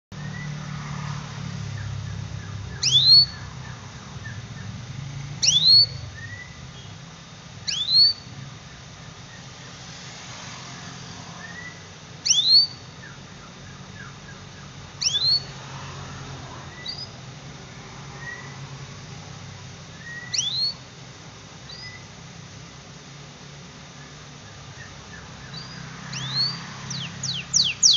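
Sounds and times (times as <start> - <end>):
canary whistled call notes: 0.2 - 0.6, 1.7 - 4.8, 5.4 - 7.0, 7.6 - 8.3, 11.4 - 15.5, 16.7 - 17.2, 18.2 - 18.6, 19.9 - 20.9, 21.7 - 22.1, 24.0 - 27.9.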